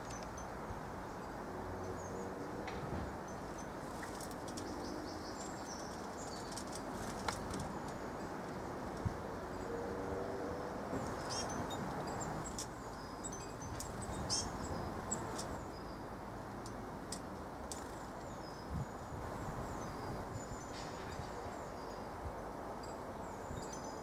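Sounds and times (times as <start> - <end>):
small birds chirping: 3.8 - 9.7, 11.0 - 22.2.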